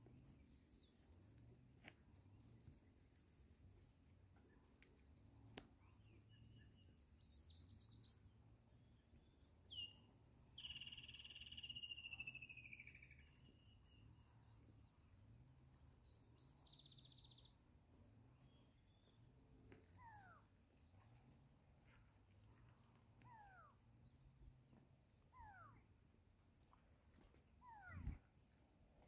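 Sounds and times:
high bird trills: 0:10.6 - 0:13.4.

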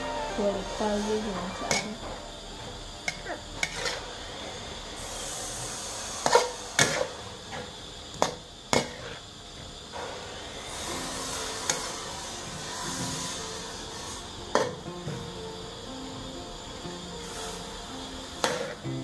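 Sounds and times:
faint sizzle: 0:00.0 - 0:19.0
metal spatula scraping a wok: 0:03.2 - 0:04.2, 0:05.0 - 0:07.6, 0:10.8 - 0:14.8.

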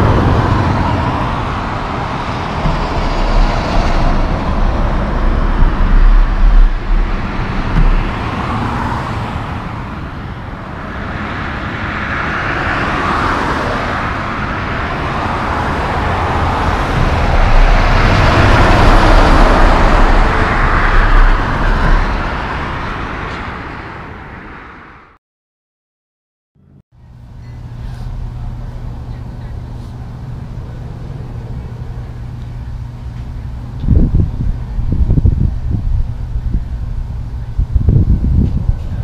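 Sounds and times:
truck passing on highway: 0:00.0 - 0:25.2.

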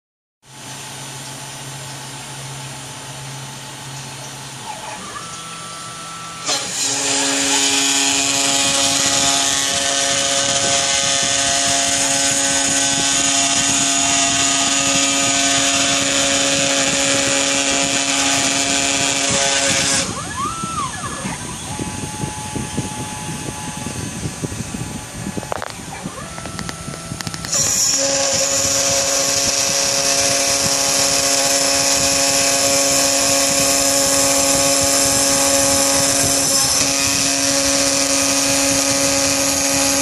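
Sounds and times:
router spindle high whine: 0:00.5 - 0:40.0.

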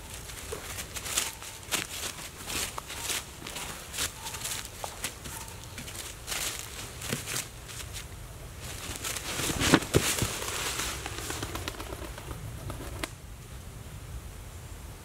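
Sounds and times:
dry leaves crackling: 0:00.0 - 0:13.2
pigeon wings flapping: 0:08.8 - 0:13.1.

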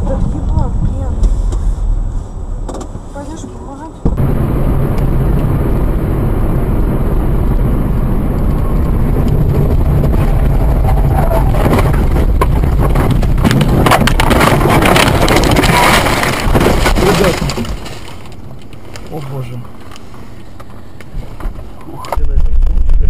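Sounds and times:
car engine and road rumble: 0:00.0 - 0:23.0
sharp knocks and rattles: 0:11.5 - 0:18.7.

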